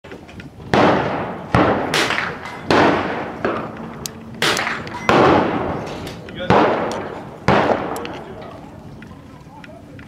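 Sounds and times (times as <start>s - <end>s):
gunshots with echo: 0.7s - 8.3s.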